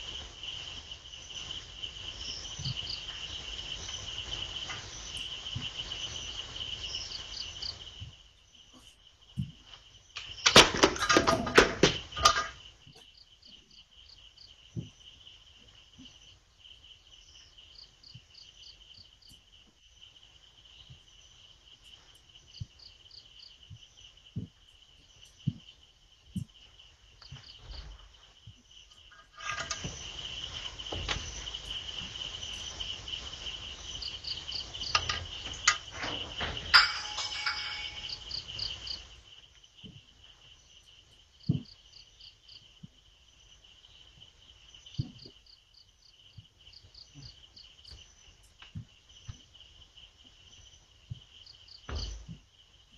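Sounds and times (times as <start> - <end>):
crickets chirping: 0.0 - 52.9
loud knocks and clatter: 10.3 - 12.6, 29.1 - 30.1, 34.8 - 38.7.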